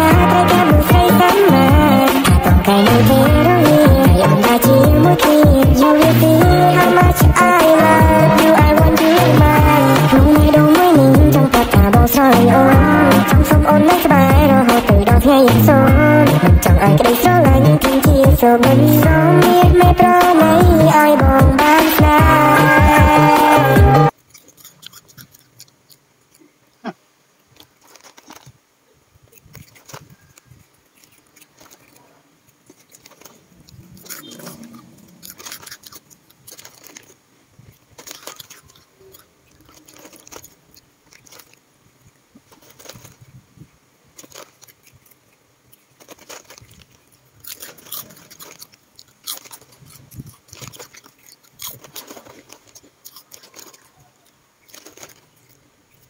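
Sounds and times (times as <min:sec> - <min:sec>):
cats crunching dry snacks: 0:00.1 - 0:09.2, 0:24.1 - 0:26.5, 0:27.5 - 0:28.6, 0:29.2 - 0:41.7, 0:42.3 - 0:43.4, 0:44.1 - 0:56.0
foil snack bag rustling: 0:27.5 - 0:28.6, 0:32.7 - 0:41.6, 0:42.4 - 0:43.4, 0:44.1 - 0:55.7.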